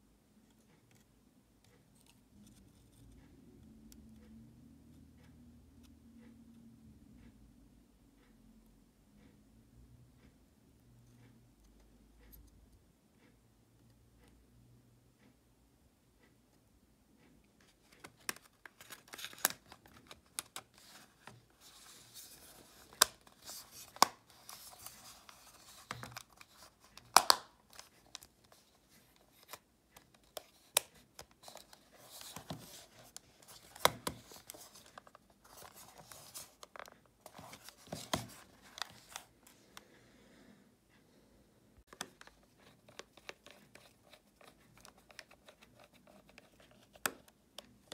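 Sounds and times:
plastic parts clicking: 0:17.9 - 0:39.3.

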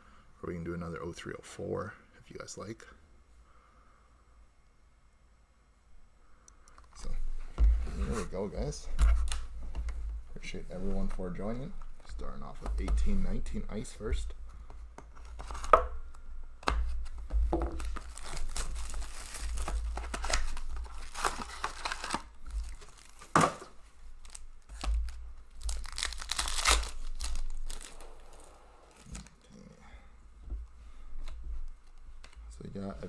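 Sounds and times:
plastic wrappers tearing and crinkling: 0:17.8 - 0:29.4.

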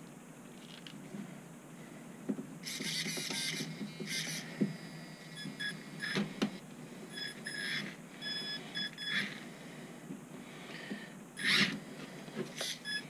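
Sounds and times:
electric motor whining: 0:11.4 - 0:11.8.

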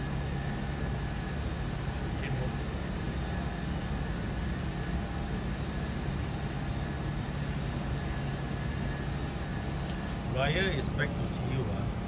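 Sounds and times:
constant low hum: 0:00.0 - 0:12.0
fan noise rushing: 0:00.0 - 0:12.0.

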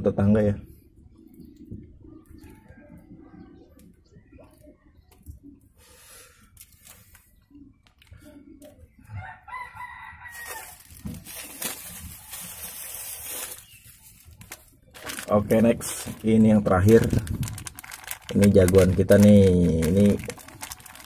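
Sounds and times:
faint background sounds: 0:00.0 - 0:17.1
rooster crowing: 0:09.2 - 0:10.8.

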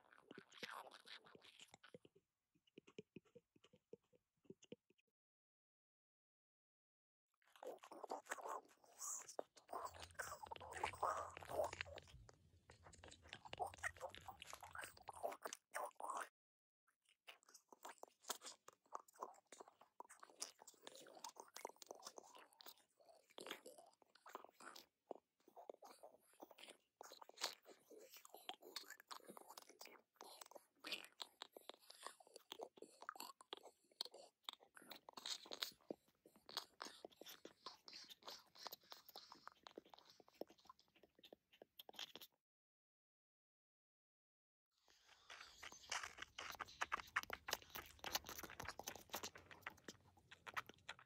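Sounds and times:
squishy crunchy clicks and crackles: 0:07.5 - 0:16.1, 0:45.0 - 0:51.0
wet squishy crunching clicks: 0:45.3 - 0:51.0.

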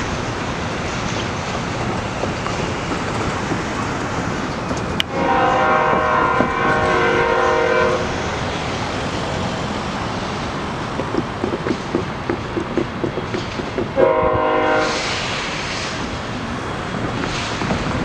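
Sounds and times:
freight train rumble: 0:00.0 - 0:18.0
locomotive horn blast: 0:05.1 - 0:08.4, 0:14.0 - 0:15.3.

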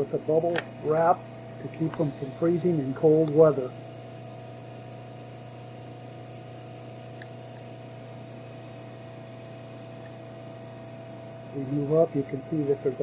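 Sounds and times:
generator hum: 0:00.0 - 0:13.0
even hiss: 0:00.2 - 0:03.8.

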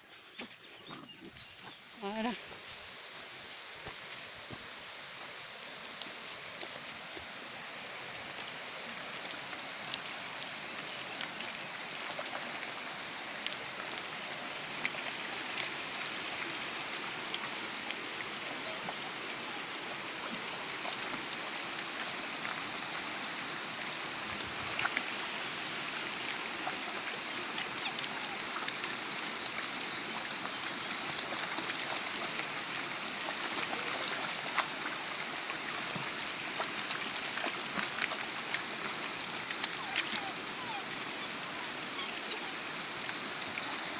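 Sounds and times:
stream running over stones: 0:00.0 - 0:43.9
puppies splashing in water: 0:08.9 - 0:43.9.

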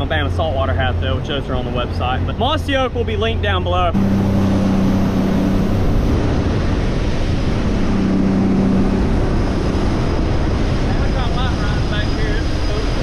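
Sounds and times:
boat engine hum: 0:00.0 - 0:13.0
wind and spray rushing: 0:03.9 - 0:13.0.

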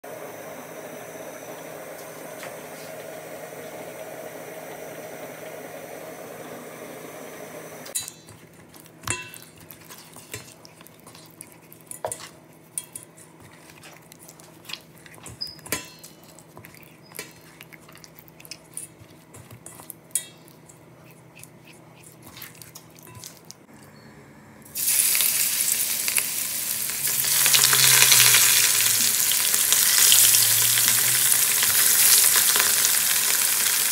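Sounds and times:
hot oil sizzling: 0:24.8 - 0:33.9.

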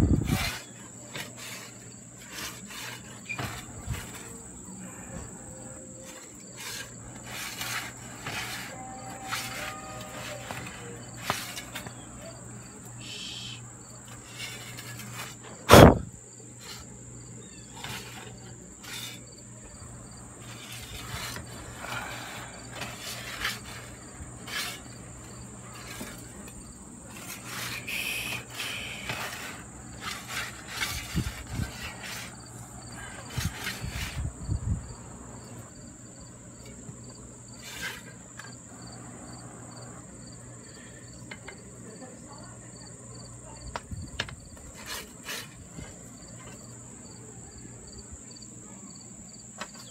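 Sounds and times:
pulsing insect chirp: 0:00.0 - 0:41.2
insects droning: 0:00.0 - 0:49.9.

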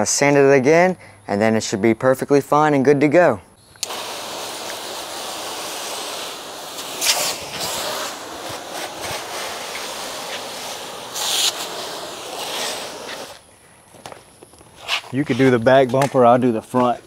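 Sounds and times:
hose spraying water on plastic: 0:03.8 - 0:13.4.

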